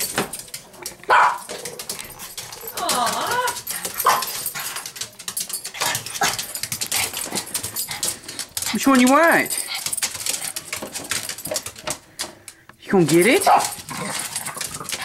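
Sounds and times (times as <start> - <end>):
light clicking and rustling: 0.0 - 15.0
dog barking: 1.1 - 1.5, 4.0 - 4.4, 13.5 - 13.8.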